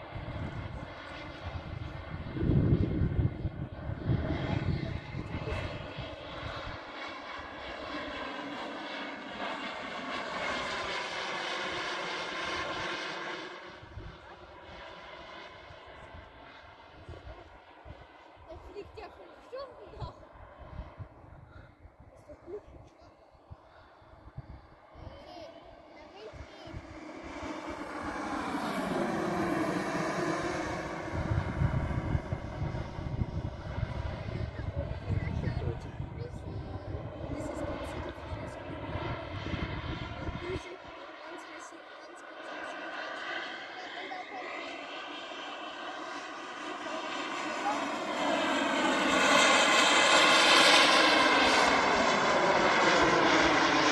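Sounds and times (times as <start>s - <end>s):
gusty low rumble: 0.0s - 7.6s, 20.2s - 22.8s, 23.4s - 40.9s
model aircraft engine whine: 0.0s - 53.9s.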